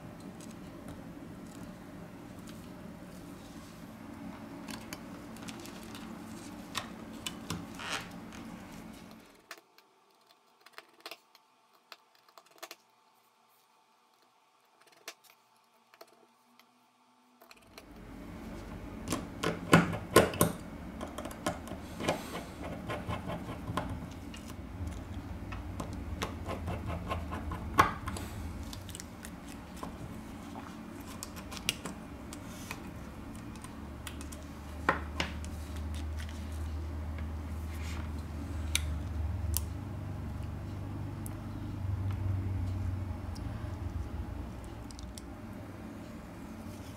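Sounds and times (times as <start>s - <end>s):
steady low hum: 0.0s - 9.6s, 16.4s - 46.9s.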